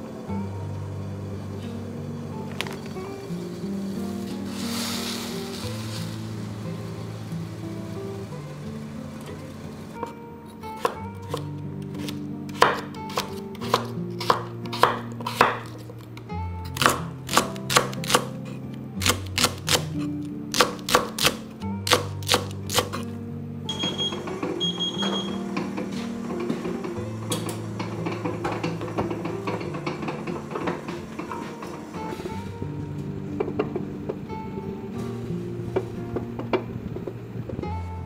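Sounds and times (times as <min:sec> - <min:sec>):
soft background music: 0:00.0 - 0:38.0
knife chopping on wooden board: 0:10.7 - 0:15.9, 0:16.8 - 0:18.4, 0:19.0 - 0:23.0.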